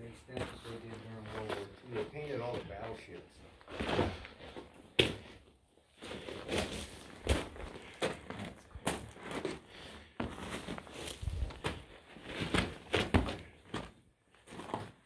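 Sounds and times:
footsteps on loose rock: 6.0 - 15.0.

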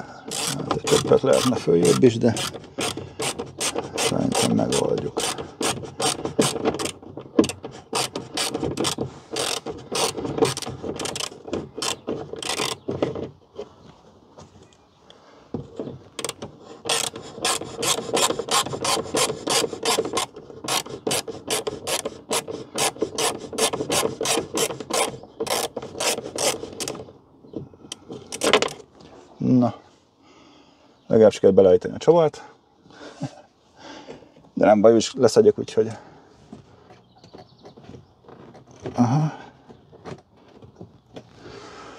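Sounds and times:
ratchet wrench clicking: 8.0 - 12.8, 16.2 - 26.6.

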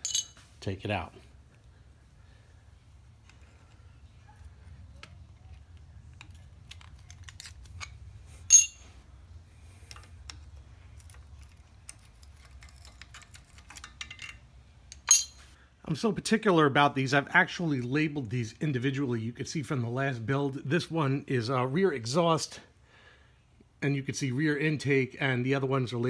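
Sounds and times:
ringing metal clink: 0.0 - 0.4, 8.5 - 8.9, 15.0 - 15.5
metallic clicks and scrapes: 9.7 - 15.6.

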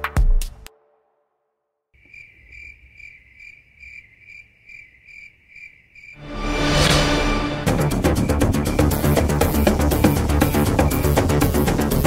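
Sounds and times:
crickets chirping: 2.0 - 6.5, 7.2 - 12.0.

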